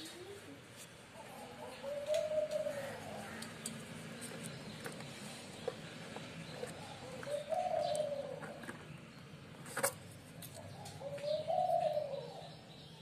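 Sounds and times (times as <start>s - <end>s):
pigeon cooing: 0.0s - 3.7s, 6.5s - 8.8s, 10.5s - 12.7s.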